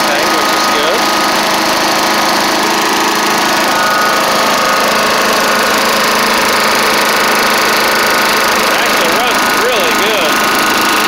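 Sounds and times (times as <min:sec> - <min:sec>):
lawn mower engine running: 0:00.0 - 0:11.0.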